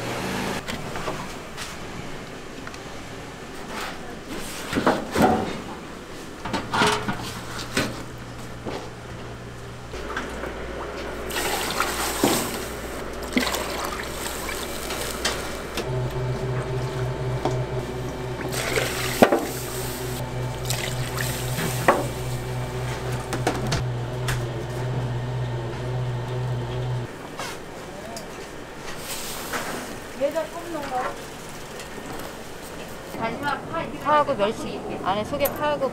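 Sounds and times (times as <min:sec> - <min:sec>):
steady low hum: 0:06.5 - 0:27.1
broth pouring and splashing: 0:11.2 - 0:15.8, 0:18.4 - 0:22.3.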